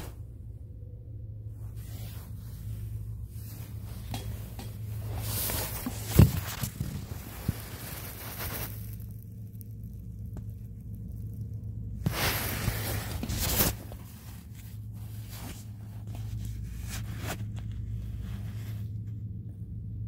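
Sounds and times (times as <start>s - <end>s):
low hum: 0.0s - 20.0s
rustling and handling noise: 0.0s - 20.0s.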